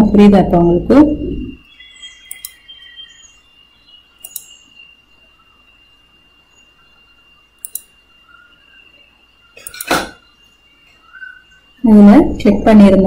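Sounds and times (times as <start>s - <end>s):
faint bird chirps: 0.0s - 13.0s
faint high-pitched whine: 0.0s - 13.0s
computer mouse clicks: 2.2s - 2.6s, 4.2s - 4.6s, 7.6s - 7.9s, 9.6s - 10.1s.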